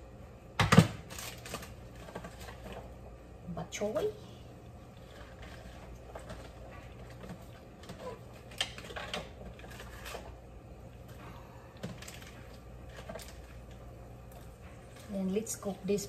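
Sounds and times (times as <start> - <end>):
low hum: 0.0 - 16.0
vegetables clicking and rustling: 0.6 - 2.9, 5.0 - 10.4, 11.0 - 16.0.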